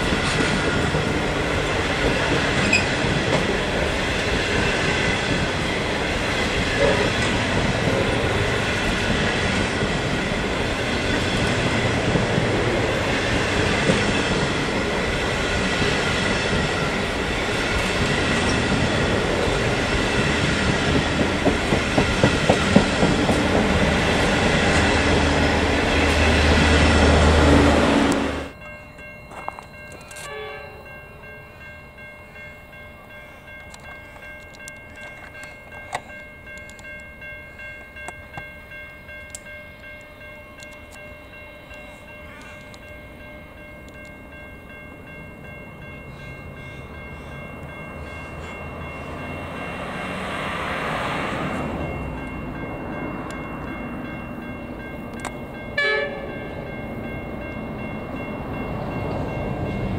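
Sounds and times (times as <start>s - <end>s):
diesel locomotive engine rumble: 0.0s - 30.1s, 30.8s - 59.9s
level crossing bells ringing: 0.0s - 59.9s
train horn blast: 30.2s - 30.8s, 55.8s - 56.3s.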